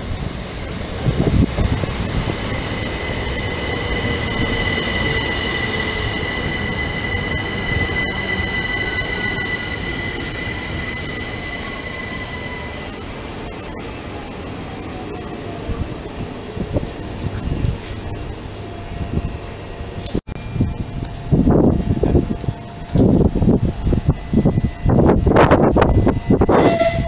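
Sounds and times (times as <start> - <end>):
train rumbling: 0.0 - 27.0
high brake squeal: 1.3 - 14.1, 16.6 - 17.8, 25.8 - 27.0.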